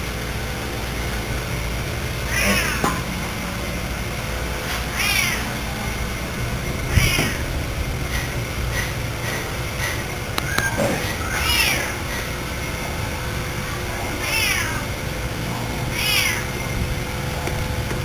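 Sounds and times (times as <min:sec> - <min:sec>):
steady low hum: 0:00.0 - 0:18.0
animal calling: 0:02.2 - 0:03.2, 0:04.6 - 0:13.0, 0:13.6 - 0:16.7.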